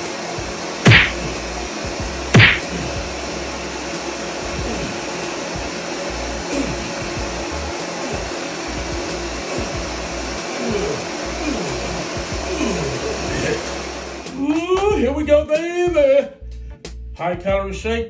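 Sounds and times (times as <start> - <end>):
blender running at high speed: 0.0 - 14.4.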